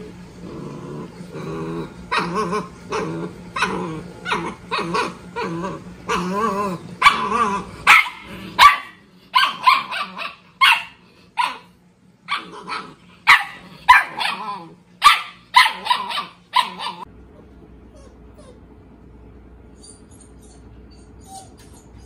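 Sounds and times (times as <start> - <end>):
dogs growling: 0.0 - 11.7, 12.3 - 15.0
dogs growly barking: 0.0 - 18.6
sharp high dog barks: 7.9 - 11.6, 15.0 - 17.0.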